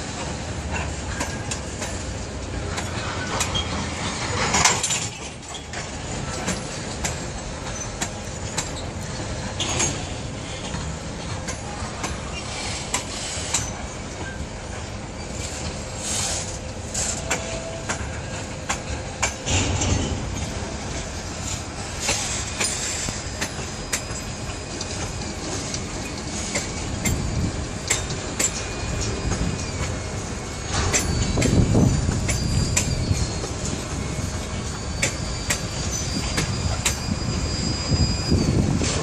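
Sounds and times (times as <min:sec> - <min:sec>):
train rumble: 0:00.0 - 0:39.0
train wheels clicking on rail joints: 0:00.0 - 0:39.0
wheel squeal: 0:02.7 - 0:06.9, 0:07.5 - 0:10.8, 0:11.5 - 0:39.0.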